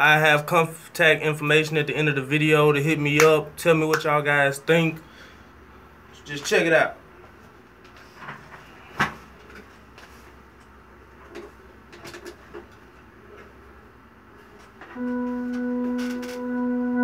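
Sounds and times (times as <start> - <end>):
organ holding a chord: 15.0 - 17.0.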